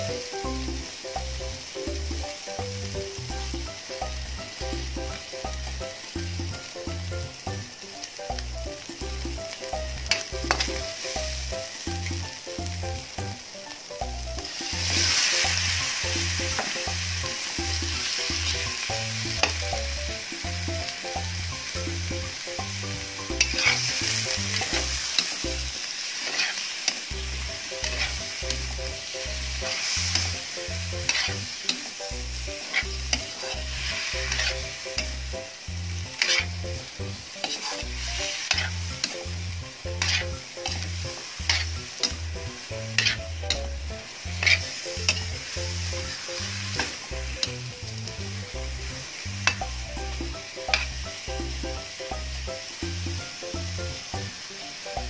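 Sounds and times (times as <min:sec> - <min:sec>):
food sizzling in a wok: 0:00.0 - 0:55.0
metal tongs scraping a pan: 0:10.1 - 0:11.3, 0:14.4 - 0:17.0, 0:23.3 - 0:35.2, 0:36.0 - 0:42.2, 0:42.8 - 0:47.6, 0:49.4 - 0:49.8, 0:50.7 - 0:51.0.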